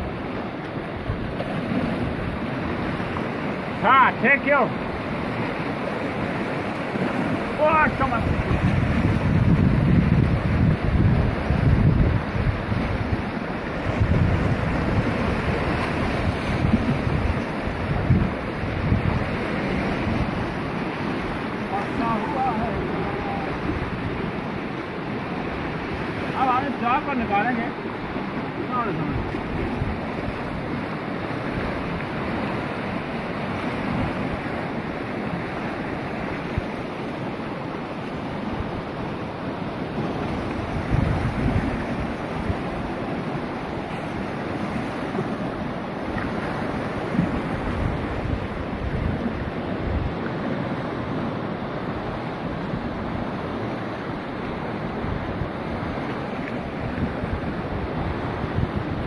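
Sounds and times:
river rushing over rapids: 0.0 - 59.0
wind rumbling on microphone: 7.3 - 26.4, 29.0 - 34.8, 39.9 - 50.6, 51.9 - 59.0.

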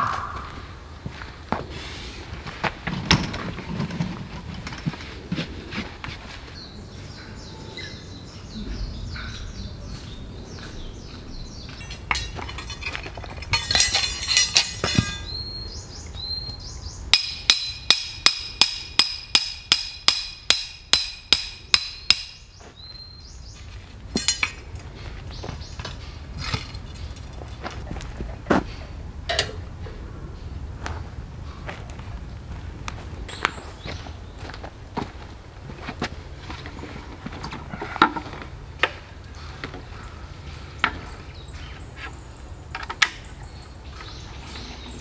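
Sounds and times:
knocks and clatter: 2.6 - 5.5, 11.8 - 15.3
metal-on-metal strikes ringing: 11.8 - 15.4, 17.1 - 22.4.

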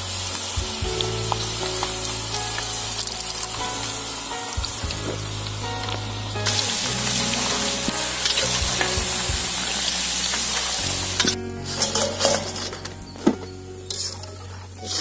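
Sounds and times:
chips sizzling in hot oil: 0.0 - 12.3
skimmer clinks and rustles: 11.2 - 15.0.

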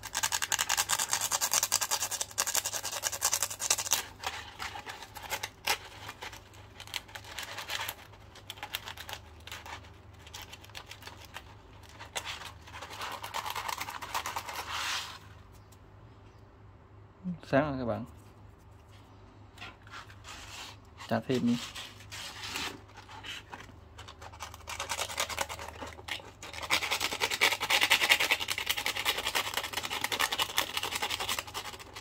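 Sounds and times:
sandpaper scratching metal: 12.2 - 15.2, 19.9 - 23.5.

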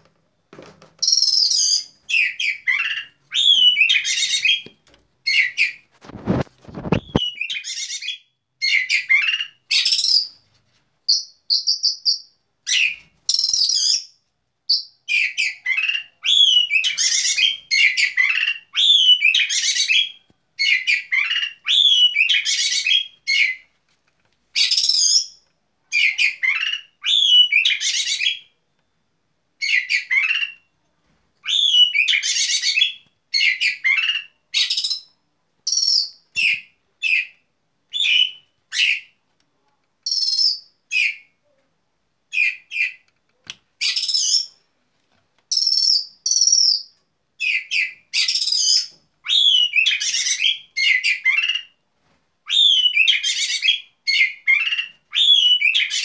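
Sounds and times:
bird song whistles and chirps: 1.0 - 4.7, 6.8 - 10.4, 11.1 - 14.1, 14.7 - 23.6, 24.6 - 28.5, 31.4 - 39.1, 40.0 - 41.3, 43.8 - 44.6, 45.5 - 51.8, 52.5 - 56.0.

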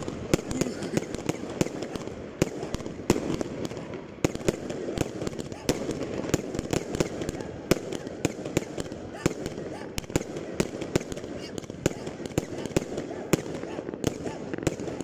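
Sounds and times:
fireworks popping: 0.0 - 15.0.

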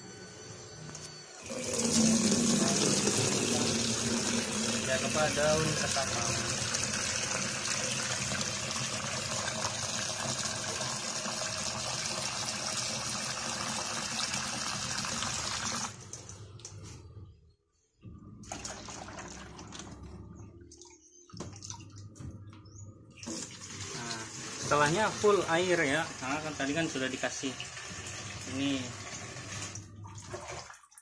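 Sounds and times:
tap water running into bucket: 1.4 - 16.7, 18.4 - 20.1, 23.2 - 31.0
water poured from bucket: 18.4 - 20.2, 27.5 - 31.0.

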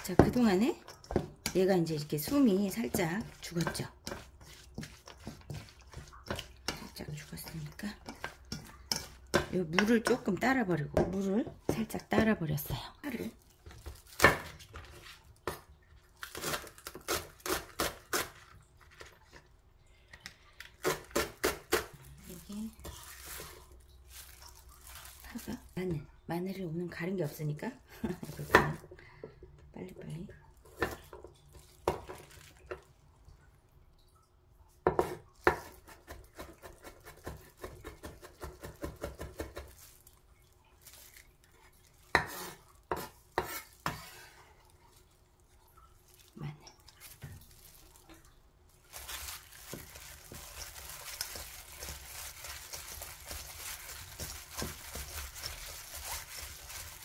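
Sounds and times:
knife chopping on wooden board: 34.9 - 39.7.

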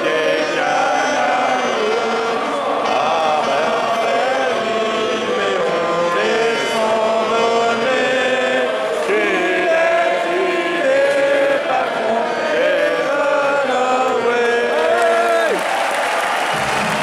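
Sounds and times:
crowd singing an anthem: 0.0 - 17.0.

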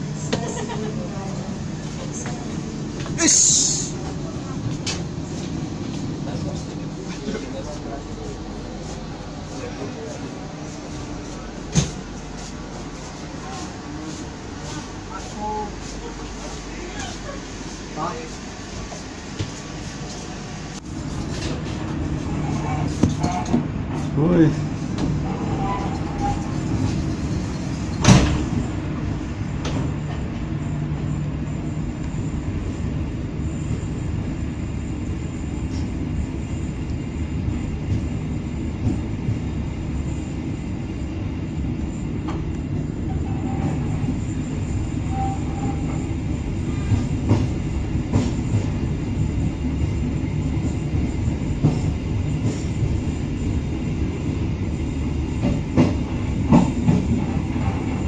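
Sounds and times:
train wheels rumbling on track: 0.0 - 58.0.

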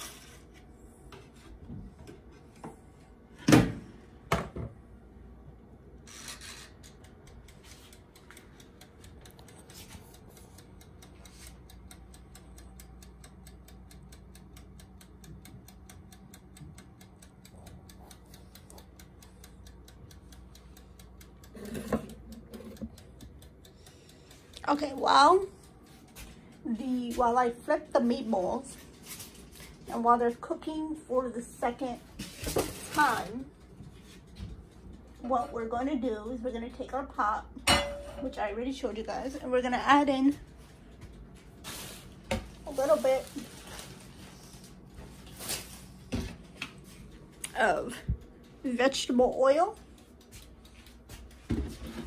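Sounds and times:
steady mechanical ticking: 5.0 - 45.2, 45.9 - 52.0.

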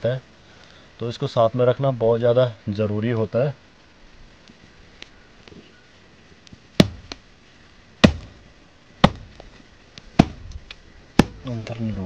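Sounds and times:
machete chopping blows: 6.8 - 7.2, 8.0 - 8.4, 9.0 - 9.4, 10.2 - 10.5.

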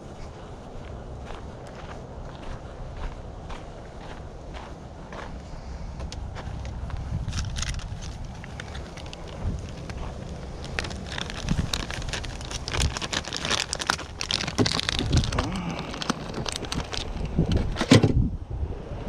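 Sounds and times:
plastic bag crinkling: 7.2 - 17.5.

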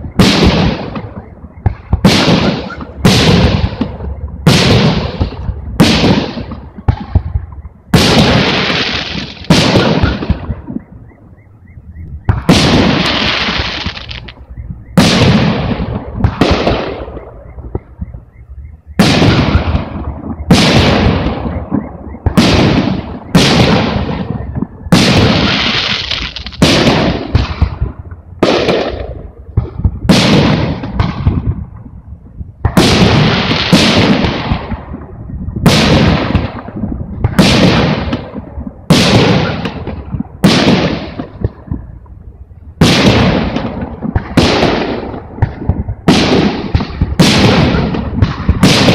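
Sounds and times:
firework shells bursting: 12.3 - 14.4.

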